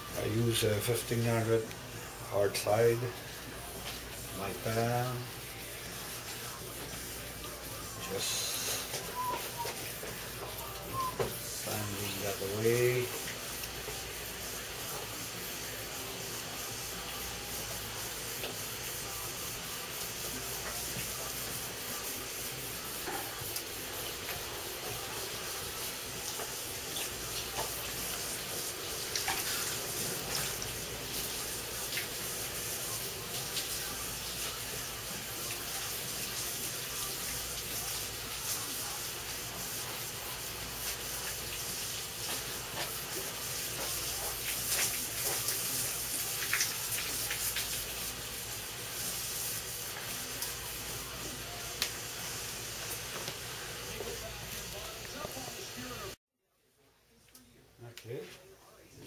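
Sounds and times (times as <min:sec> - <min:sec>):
sandpaper scratching on paint: 0:11.5 - 0:26.5.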